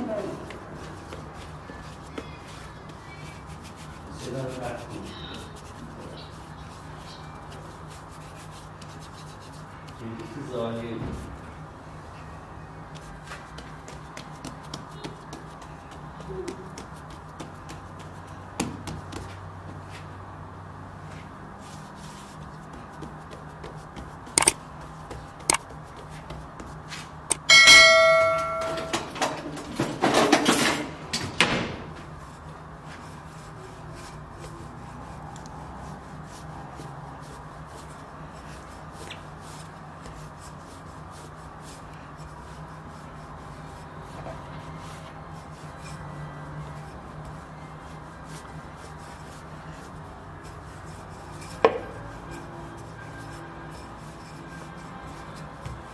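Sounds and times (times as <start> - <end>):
sharp metallic ding: 27.3 - 29.0.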